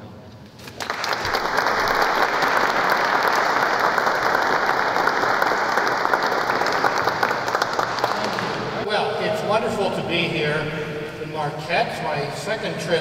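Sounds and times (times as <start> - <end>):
audience applauding: 0.6 - 8.9.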